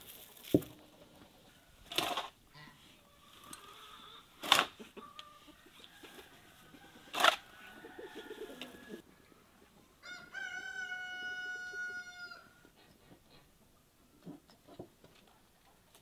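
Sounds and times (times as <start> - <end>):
rooster crowing: 5.2 - 9.0, 10.0 - 12.5.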